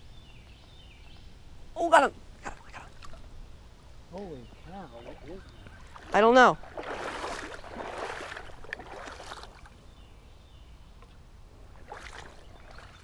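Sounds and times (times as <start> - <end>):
stream water splashing: 2.2 - 3.4, 4.8 - 9.9, 11.6 - 13.0.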